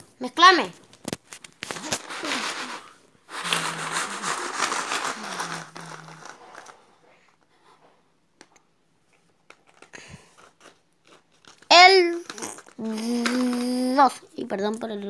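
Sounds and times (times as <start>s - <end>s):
plastic bingo chips rattling: 1.7s - 6.9s.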